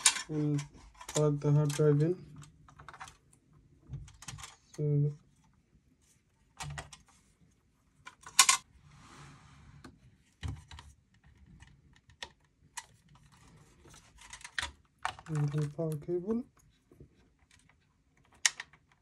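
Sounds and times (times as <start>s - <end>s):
plastic connectors clicking: 14.2s - 16.4s, 17.5s - 19.0s.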